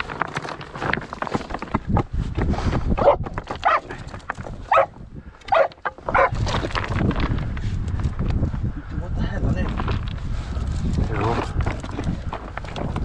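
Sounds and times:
stones clicking and knocking: 0.0s - 8.5s, 9.4s - 13.0s
dogs barking: 3.0s - 3.9s, 4.7s - 4.9s, 5.5s - 6.4s.

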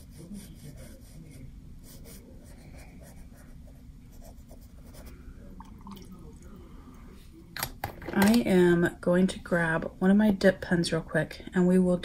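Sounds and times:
paintbrush scratching on paper: 0.0s - 5.2s
low background hum: 0.0s - 12.0s.

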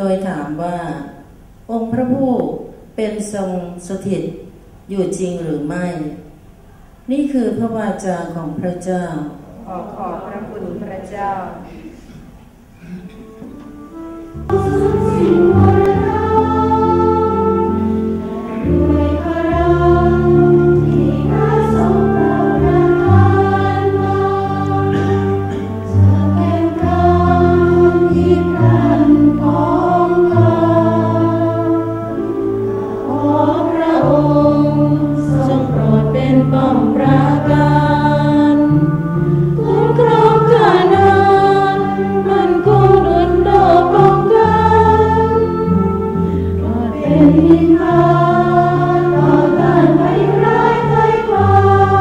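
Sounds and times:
sustained low accompanying chords: 9.5s - 52.0s
choir singing a hymn: 13.9s - 52.0s.

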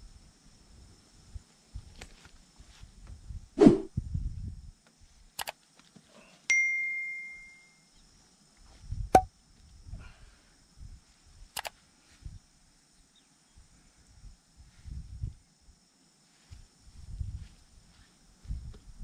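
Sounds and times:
notification bell ding: 6.5s - 7.8s.

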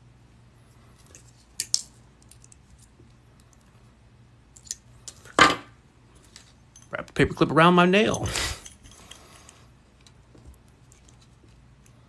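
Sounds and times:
pliers clicking and scraping metal: 1.0s - 2.9s, 4.6s - 5.3s.

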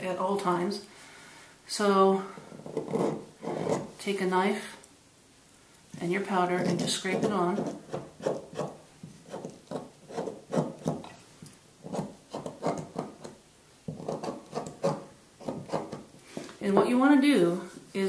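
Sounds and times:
knife scraping compound: 2.5s - 3.9s, 6.4s - 11.2s, 11.8s - 16.6s.

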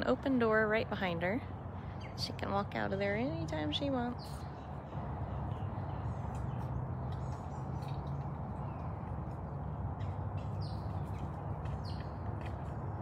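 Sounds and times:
birds chirping: 1.4s - 13.0s.

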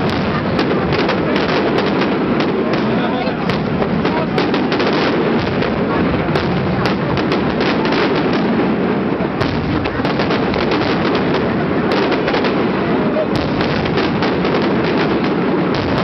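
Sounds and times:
fireworks crackling and banging: 0.0s - 16.0s.

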